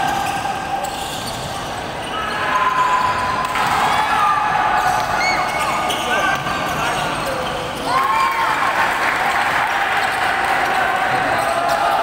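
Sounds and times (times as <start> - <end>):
sneakers squeaking on wooden court: 0.2 - 2.2, 5.2 - 7.9.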